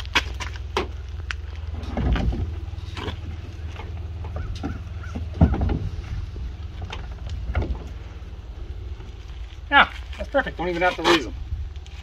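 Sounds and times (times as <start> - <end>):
steady low rumble: 0.0 - 12.0
heavy thump: 4.3 - 8.0.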